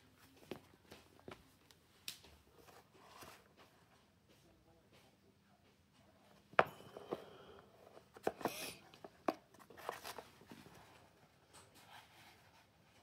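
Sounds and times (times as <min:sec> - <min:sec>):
cardboard rustle: 0:09.3 - 0:13.0.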